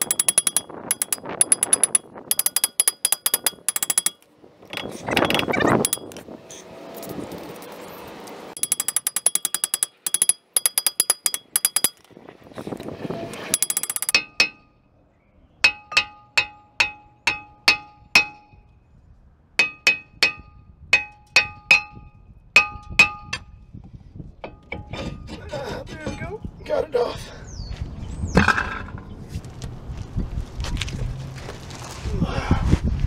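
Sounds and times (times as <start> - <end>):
hammer striking ringing metal: 0.0 - 4.2, 5.8 - 6.2, 8.6 - 12.0, 13.4 - 14.7, 15.6 - 18.6, 19.6 - 23.6
rapid metallic clicking: 0.0 - 6.2, 8.6 - 12.1, 13.4 - 14.4.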